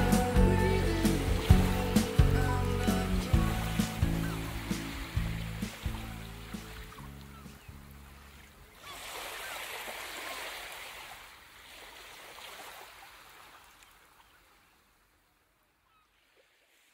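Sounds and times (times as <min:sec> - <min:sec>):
low song notes: 0:00.0 - 0:08.0
water trickling and splashing: 0:00.0 - 0:16.9.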